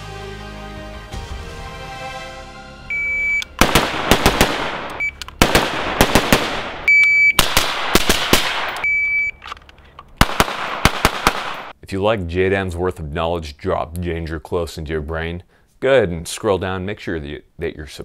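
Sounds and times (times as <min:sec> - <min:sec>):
electronic shot timer beep: 0:02.9 - 0:03.5, 0:04.9 - 0:05.2, 0:06.9 - 0:07.4, 0:08.8 - 0:09.4
rapid gunshots: 0:03.6 - 0:08.8, 0:10.2 - 0:11.7.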